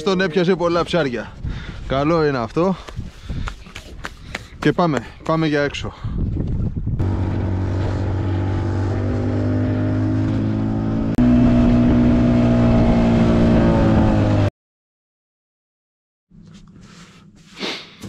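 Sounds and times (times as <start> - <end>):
water against hull: 7.0 - 10.7
boat motor running: 7.0 - 14.5.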